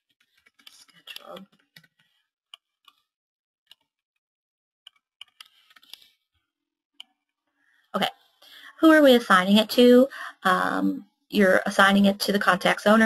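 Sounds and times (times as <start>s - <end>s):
keyboard and mouse clicks: 0.2s - 2.1s, 4.9s - 6.1s.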